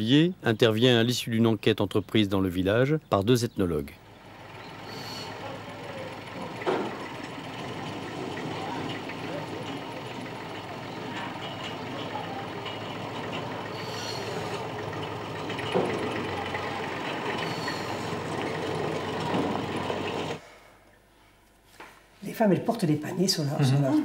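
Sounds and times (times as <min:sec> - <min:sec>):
tractor engine running: 0:03.9 - 0:20.4.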